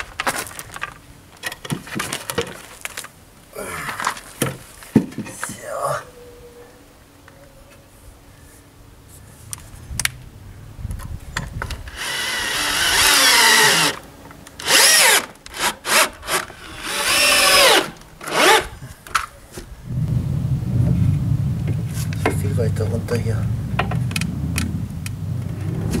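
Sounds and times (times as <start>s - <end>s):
drill motor whining: 11.9s - 14.0s, 14.6s - 18.8s
screws driven into wood: 11.9s - 14.0s, 14.6s - 18.8s.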